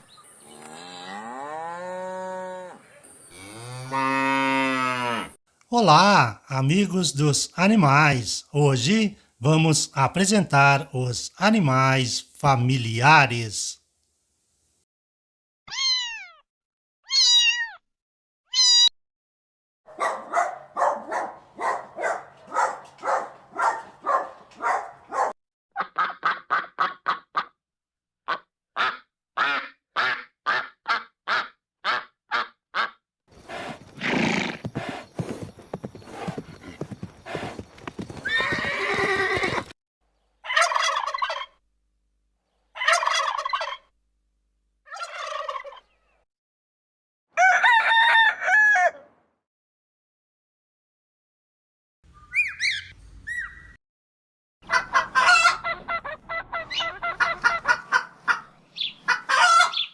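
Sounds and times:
cat meowing: 0:15.7 - 0:16.4, 0:17.1 - 0:17.8, 0:18.5 - 0:18.9
duck quacking: 0:25.8 - 0:27.5, 0:28.3 - 0:33.0, 0:54.6 - 0:59.9.

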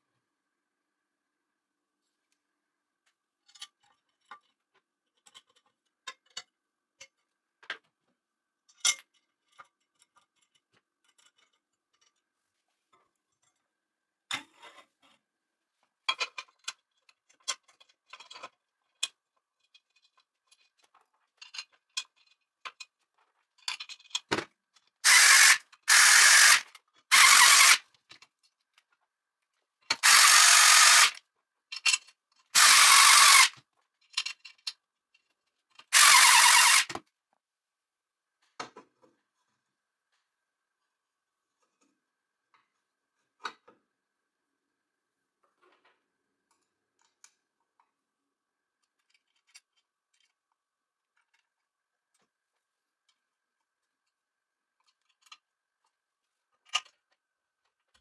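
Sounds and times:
metal parts and screws clinking: 0:08.6 - 0:12.2, 0:16.1 - 0:29.0, 0:30.0 - 0:37.0
electric screwdriver whirring: 0:25.0 - 0:27.8, 0:30.0 - 0:31.2, 0:32.6 - 0:33.6, 0:35.9 - 0:37.0.

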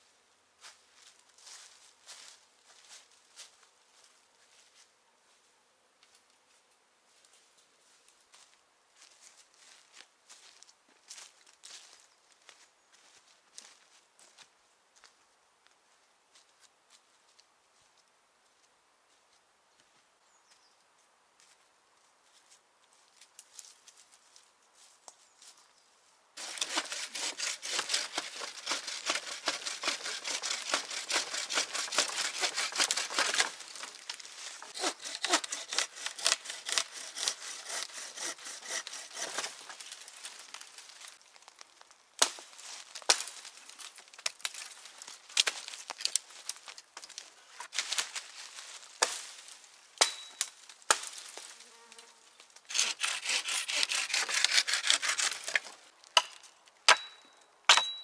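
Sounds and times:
hand saw cutting wood: 0:26.4 - 0:40.5, 0:52.7 - 0:55.8.

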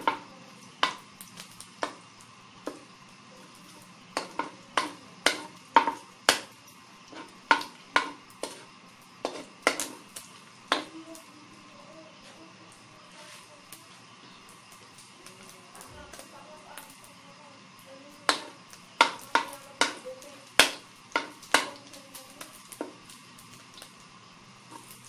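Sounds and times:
faint sizzle: 0:00.0 - 0:25.0.

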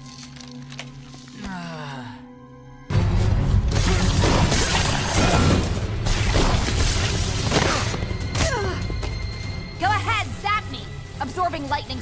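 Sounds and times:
orchestral action music: 0:02.8 - 0:12.0.

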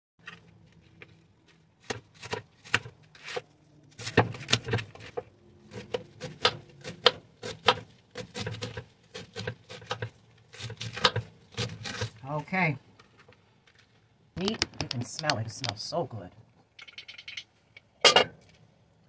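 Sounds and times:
knife slicing cabbage: 0:01.8 - 0:12.2
knife tapping plastic cutting mat: 0:14.4 - 0:15.8.

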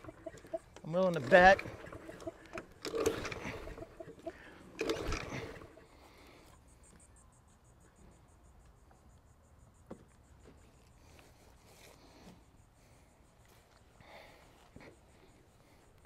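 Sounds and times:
mower engine turning over: 0:00.0 - 0:06.3
fast pulsing chirp: 0:00.0 - 0:06.4.

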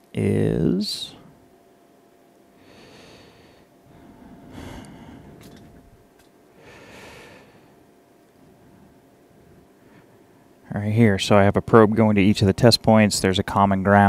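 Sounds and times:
soft breaths: 0:02.5 - 0:10.6.

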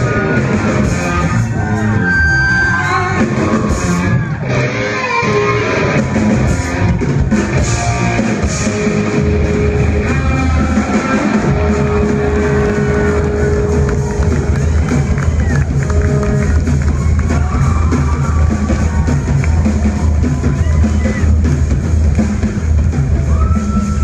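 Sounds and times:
distorted electric guitar: 0:00.0 - 0:24.0
drum kit: 0:00.0 - 0:24.0.

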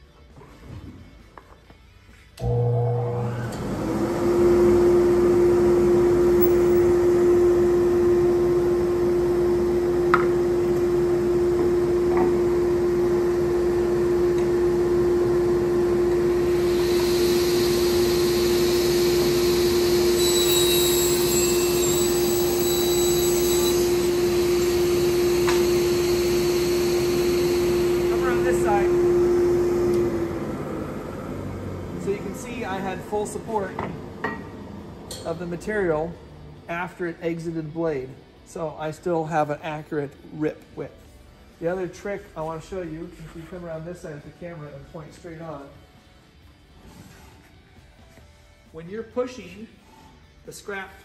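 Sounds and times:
table saw humming: 0:02.4 - 0:32.9
saw blade cutting board: 0:16.6 - 0:28.6.

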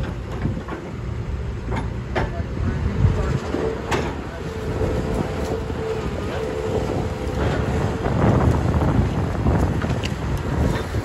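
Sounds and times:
excavator diesel engine running: 0:00.0 - 0:11.0
wind buffeting microphone: 0:00.0 - 0:11.0.

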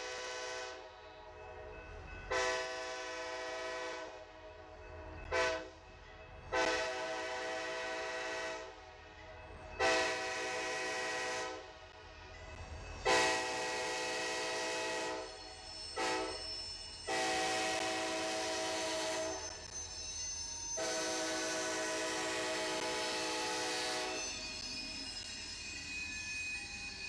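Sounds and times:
passing train rumble: 0:00.0 - 0:27.0
locomotive air horn blasts: 0:02.3 - 0:04.1, 0:05.3 - 0:05.7, 0:06.6 - 0:08.7, 0:09.8 - 0:11.6, 0:13.1 - 0:15.2, 0:17.1 - 0:19.4, 0:20.8 - 0:24.2.

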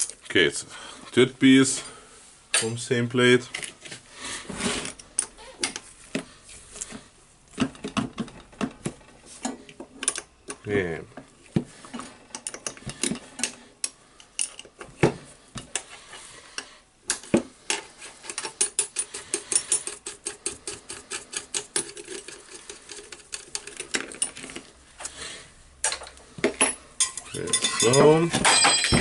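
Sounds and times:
metal parts clicking and clinking: 0:09.4 - 0:10.6, 0:12.3 - 0:14.9, 0:17.1 - 0:24.7, 0:25.8 - 0:29.0.

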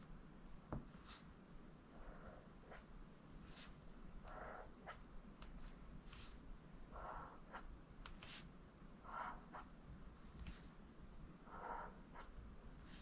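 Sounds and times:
marker scratching on paper: 0:02.0 - 0:09.7, 0:11.5 - 0:13.0.

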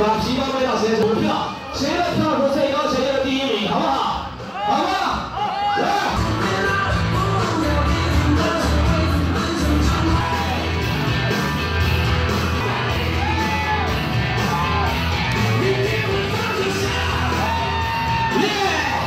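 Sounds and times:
loud pop music with singing: 0:00.0 - 0:19.0
people shouting and whooping: 0:03.8 - 0:07.4, 0:09.8 - 0:19.0.

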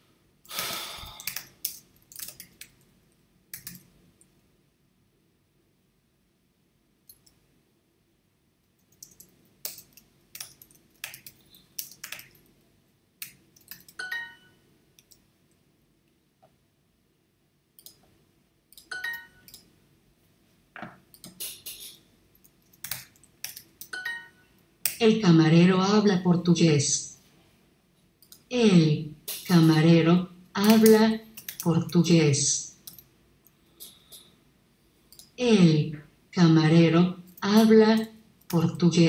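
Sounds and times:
keyboard typing: 0:01.2 - 0:02.9, 0:03.5 - 0:04.0, 0:08.8 - 0:12.5, 0:13.2 - 0:15.3, 0:17.8 - 0:18.1, 0:18.7 - 0:19.7, 0:20.8 - 0:25.0, 0:30.6 - 0:32.1.

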